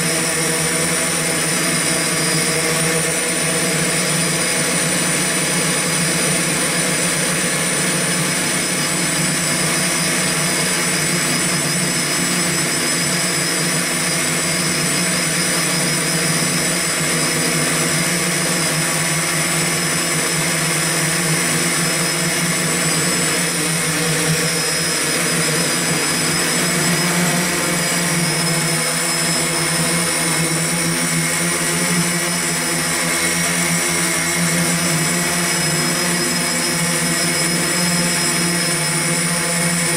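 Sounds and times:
high motor whines: 0:00.0 - 0:39.9
multicopter motors whirring: 0:00.0 - 0:39.9.

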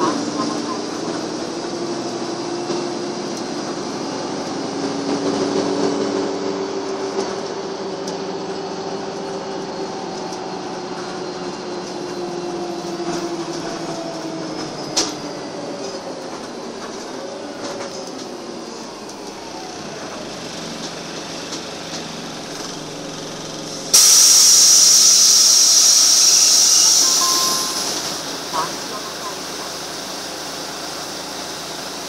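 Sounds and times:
bus engine and road drone: 0:00.0 - 0:32.0.

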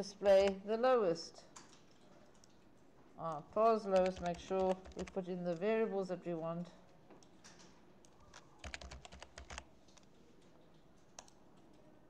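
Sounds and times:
faint keyboard typing: 0:01.3 - 0:05.7, 0:06.9 - 0:12.0.

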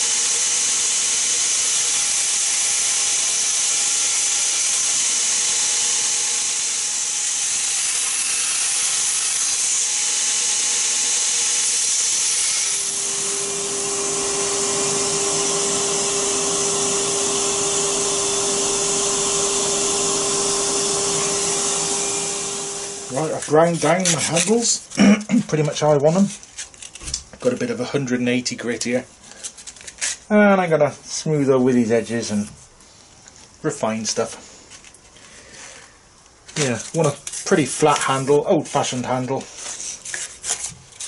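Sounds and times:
belt grinder grinding wood: 0:00.0 - 0:24.8.

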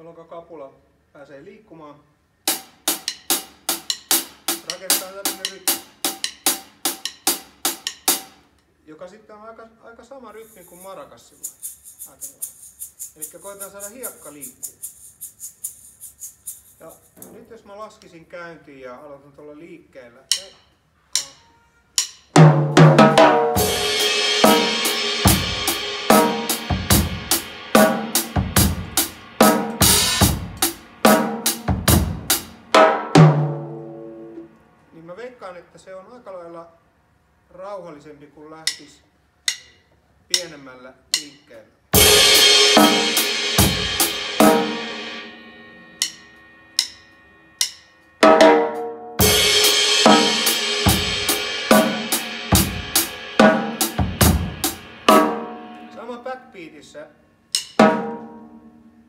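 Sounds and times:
snare drum backbeats: 0:22.4 - 0:33.6, 0:42.0 - 0:45.2, 0:48.2 - 0:56.0
cymbal strokes: 0:22.9 - 0:32.8, 0:42.0 - 0:56.4.

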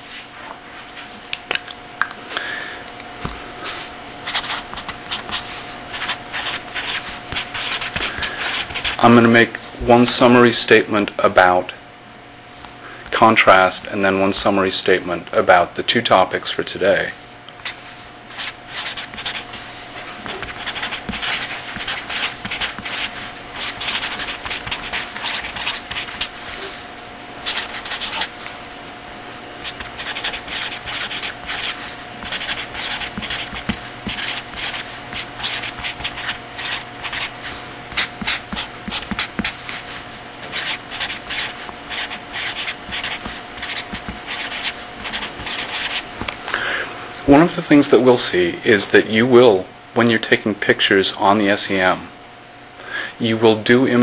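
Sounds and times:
steady hum: 0:00.0 - 0:54.0
pen scratching on paper: 0:04.2 - 0:09.1, 0:17.6 - 0:19.6, 0:20.2 - 0:26.4, 0:27.4 - 0:28.3, 0:29.6 - 0:39.9, 0:40.5 - 0:46.1.

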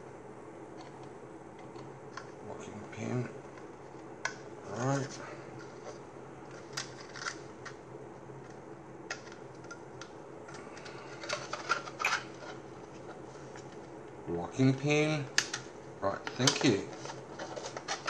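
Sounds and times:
plastic parts clicking and tapping: 0:16.2 - 0:18.0.

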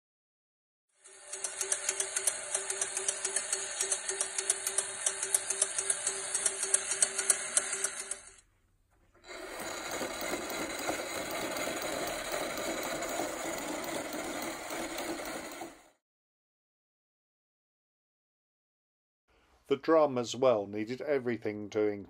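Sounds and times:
clockwork clicking: 0:01.0 - 0:08.4, 0:09.2 - 0:15.9
mechanical whirring: 0:01.0 - 0:08.4, 0:09.2 - 0:15.9.

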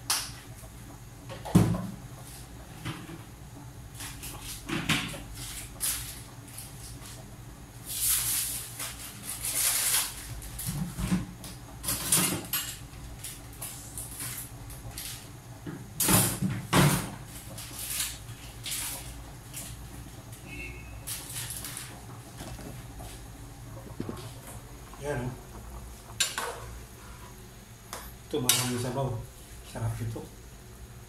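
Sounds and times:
steady low hum: 0:00.0 - 0:31.0
kitchen items knocking and rustling: 0:10.6 - 0:12.7.

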